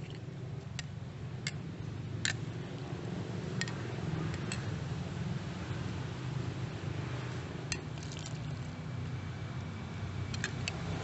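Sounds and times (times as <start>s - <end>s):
steady low hum: 0.0s - 11.0s
liquid being ladled: 7.8s - 8.7s.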